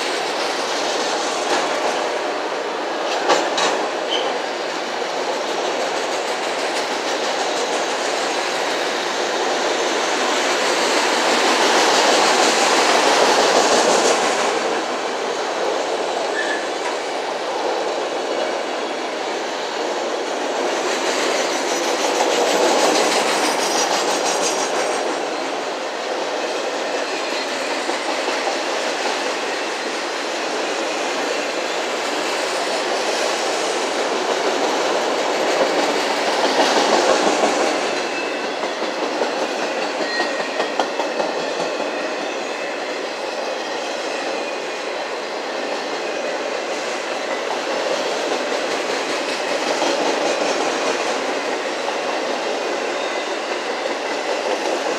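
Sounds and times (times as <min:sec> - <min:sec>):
freight train rolling past: 0:00.0 - 0:54.9
wheels clacking over rail joints: 0:03.0 - 0:19.0, 0:30.6 - 0:43.7.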